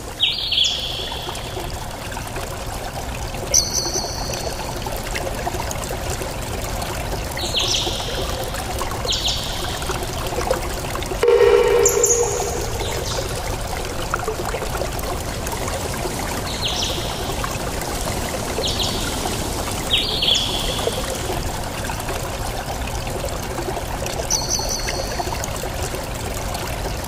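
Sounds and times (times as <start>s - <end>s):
high bird chirps: 11.2s - 13.4s.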